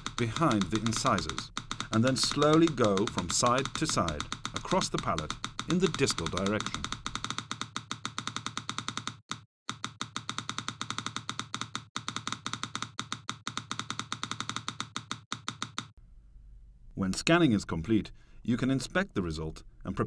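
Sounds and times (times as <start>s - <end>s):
rapid even clicking: 0.0s - 16.0s.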